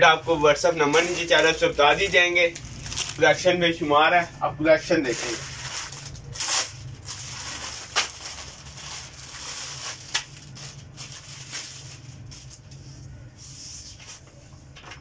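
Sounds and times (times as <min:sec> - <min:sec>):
plastic bag crinkling: 0:00.9 - 0:03.5, 0:05.0 - 0:12.3.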